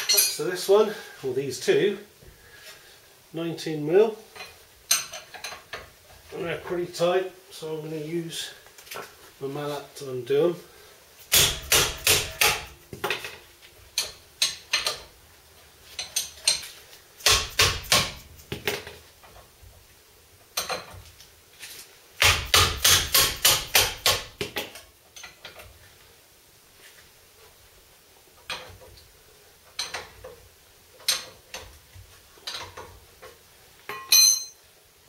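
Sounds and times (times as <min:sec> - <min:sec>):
mallet striking a spanner: 0:11.3 - 0:12.7, 0:17.2 - 0:18.2, 0:22.2 - 0:24.3.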